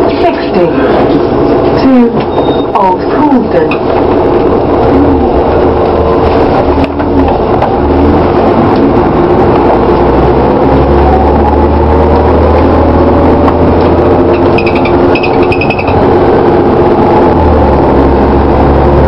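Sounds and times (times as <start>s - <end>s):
bus engine drone: 0.0s - 19.0s
rising drivetrain whine: 3.8s - 19.0s.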